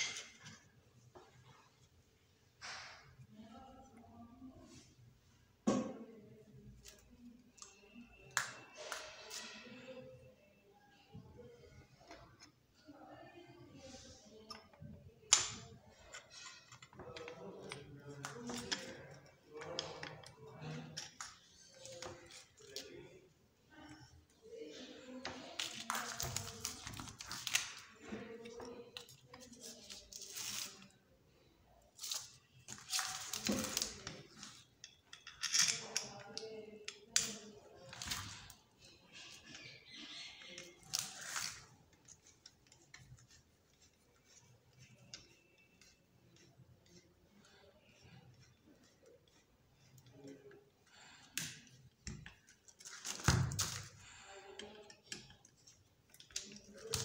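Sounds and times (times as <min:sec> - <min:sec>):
small metal clicks and scrapes: 0:15.3 - 0:22.7, 0:34.4 - 0:53.0.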